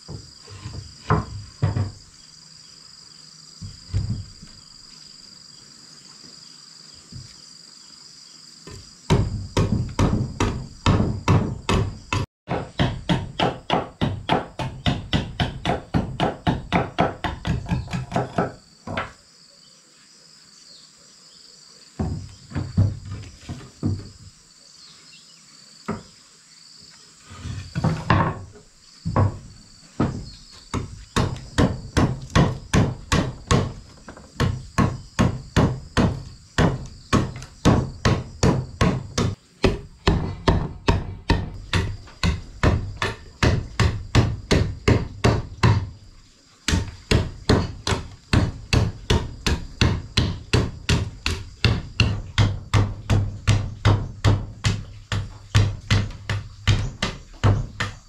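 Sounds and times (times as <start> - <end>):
high insect drone: 0.0 - 58.0
machete striking wooden board: 9.1 - 18.5, 30.0 - 33.8, 34.4 - 45.9, 46.7 - 58.0.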